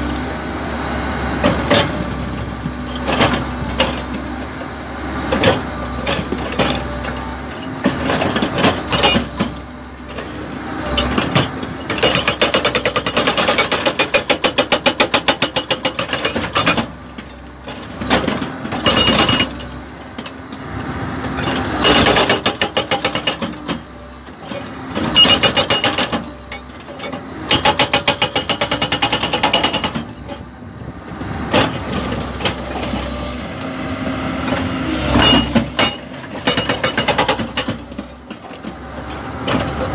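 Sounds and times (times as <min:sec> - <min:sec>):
diesel engine running: 0:00.0 - 0:39.9
hydraulic breaker hammering rock: 0:05.4 - 0:09.6, 0:10.9 - 0:19.7, 0:21.4 - 0:23.9, 0:24.6 - 0:30.4, 0:35.1 - 0:38.7.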